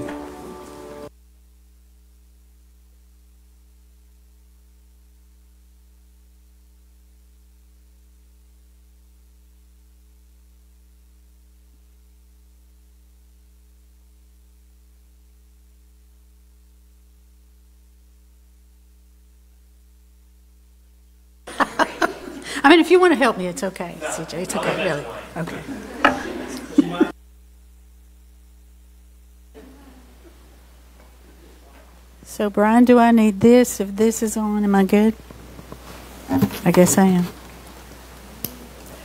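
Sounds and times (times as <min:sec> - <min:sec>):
electrical mains hum: 0:00.0 - 0:39.0
faint hiss: 0:00.0 - 0:39.0.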